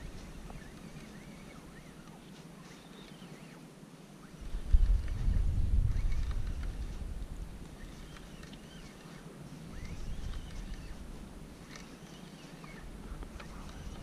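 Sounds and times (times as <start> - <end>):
wind buffeting microphone: 4.4 - 8.2, 9.7 - 11.6.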